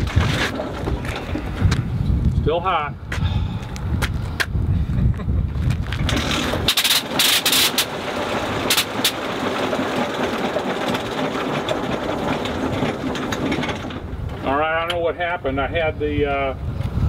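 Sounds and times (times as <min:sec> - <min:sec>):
rotary engine bangs: 0:05.9 - 0:15.2
aircraft engine running raggedly: 0:06.1 - 0:14.6.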